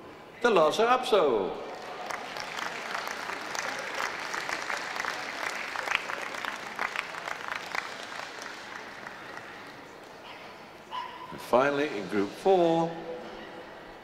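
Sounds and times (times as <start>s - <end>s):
audience applauding: 1.7s - 10.0s.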